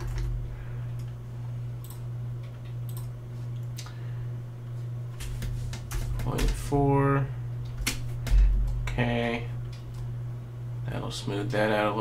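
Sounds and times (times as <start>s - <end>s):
steady low hum: 0.0s - 12.0s
computer mouse clicks: 2.9s - 3.1s.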